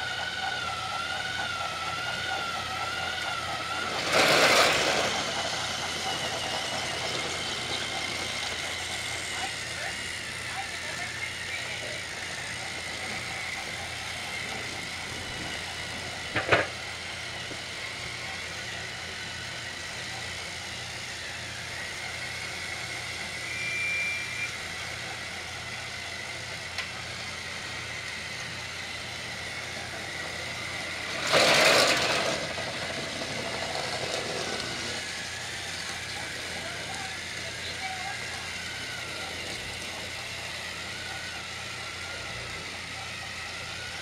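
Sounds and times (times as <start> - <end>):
toy train motors whirring: 0.0 - 44.0
rattling clatter: 31.1 - 35.1.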